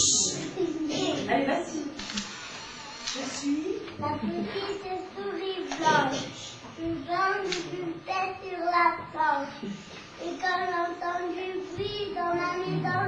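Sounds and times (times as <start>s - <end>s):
children singing: 12.7s - 13.0s.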